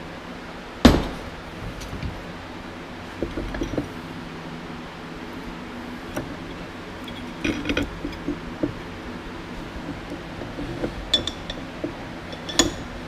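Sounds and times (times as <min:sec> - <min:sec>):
metal parts clinking: 0:07.0 - 0:08.4, 0:10.5 - 0:13.0.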